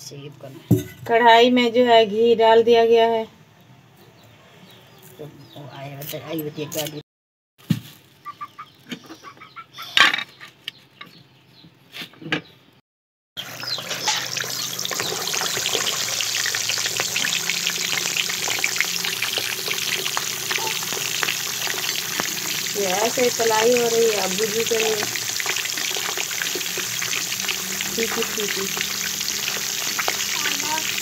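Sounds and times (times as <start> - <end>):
fish deep-frying sizzle and crackle: 13.4 - 31.0.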